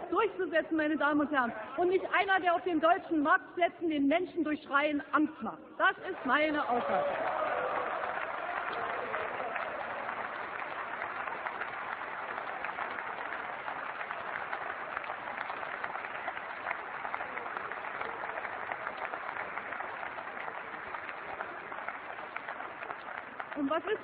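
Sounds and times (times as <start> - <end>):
many hands clapping: 6.0 - 24.0.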